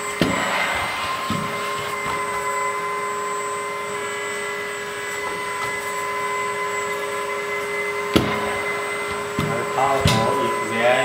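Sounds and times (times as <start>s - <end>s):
hydraulic pump whining: 0.0s - 11.0s
sharp knock: 0.2s - 3.2s.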